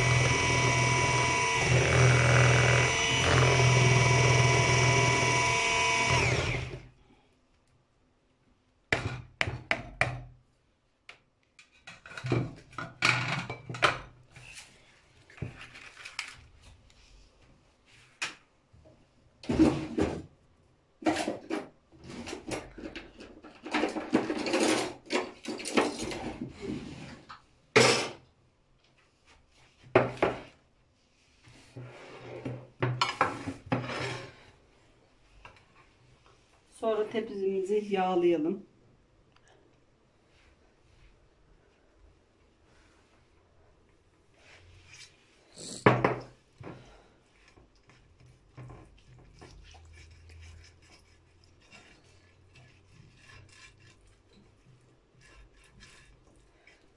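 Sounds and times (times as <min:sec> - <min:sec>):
kitchenware clattering and knocking: 0:11.8 - 0:14.2, 0:21.0 - 0:26.6, 0:45.9 - 0:46.3.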